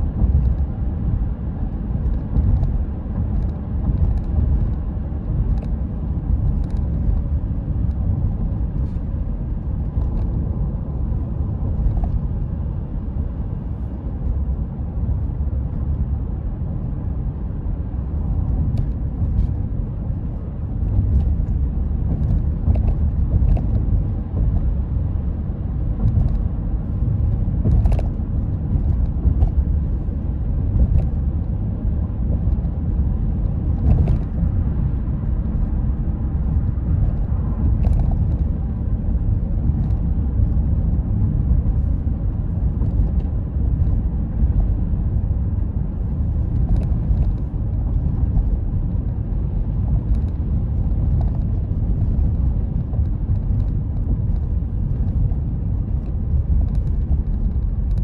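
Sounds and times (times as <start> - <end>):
car road noise from inside: 0.0 - 58.0.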